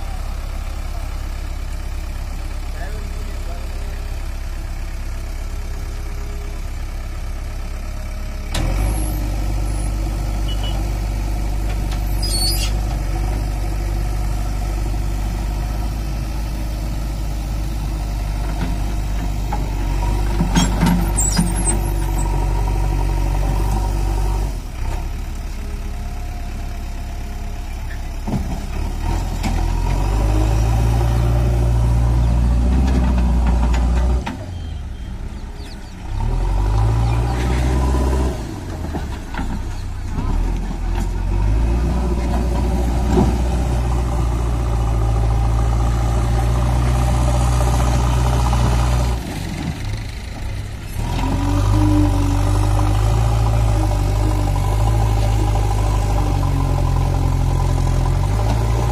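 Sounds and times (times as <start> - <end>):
diesel engine under load: 0.0 - 58.9
clicks and squeaks: 11.9 - 12.8, 20.4 - 22.3.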